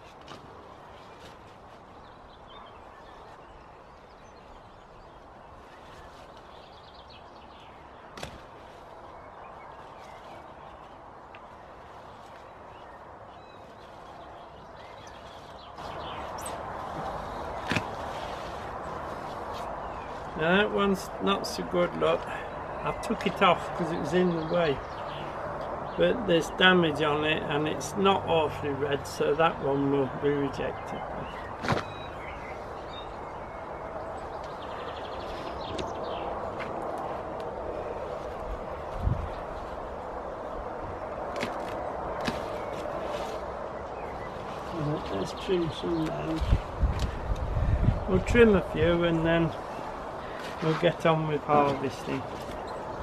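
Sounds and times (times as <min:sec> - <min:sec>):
birds chirping: 0:00.0 - 0:53.0
leaves rustling: 0:00.0 - 0:53.0
stalk snapping: 0:08.1 - 0:08.6, 0:17.0 - 0:18.2, 0:41.3 - 0:42.9.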